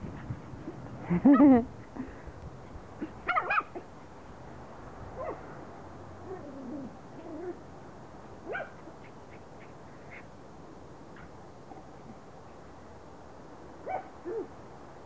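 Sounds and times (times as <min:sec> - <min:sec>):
puppies yipping: 0:03.3 - 0:03.8.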